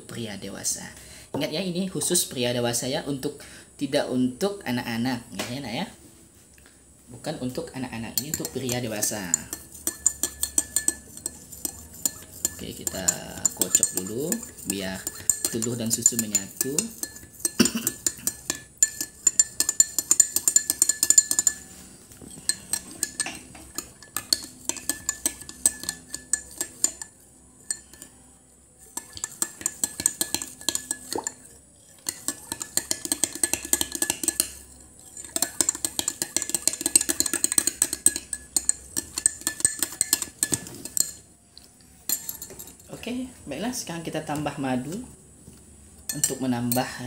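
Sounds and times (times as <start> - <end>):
spoon clinking against glass: 7.7 - 41.2, 41.8 - 43.0, 46.1 - 47.0.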